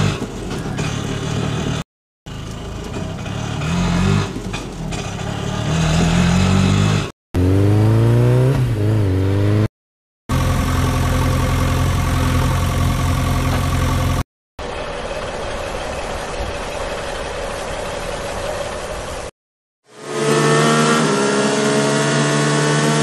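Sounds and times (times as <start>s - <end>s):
engine revving: 0.0s - 9.7s, 19.8s - 23.0s
engine idling: 10.3s - 19.3s.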